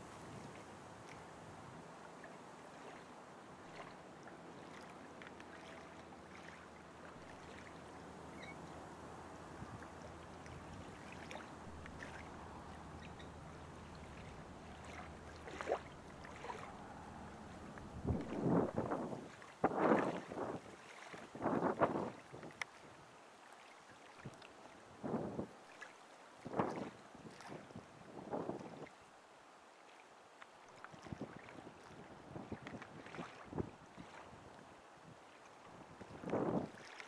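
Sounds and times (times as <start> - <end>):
hiss of moving water and air: 0.0 - 27.2.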